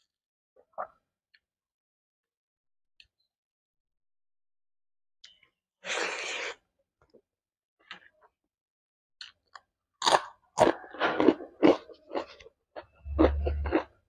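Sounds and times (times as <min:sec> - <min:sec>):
person chewing food: 0:09.2 - 0:14.0.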